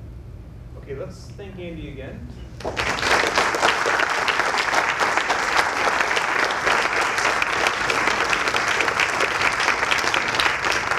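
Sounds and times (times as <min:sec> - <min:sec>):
audience applauding: 0:02.6 - 0:10.9.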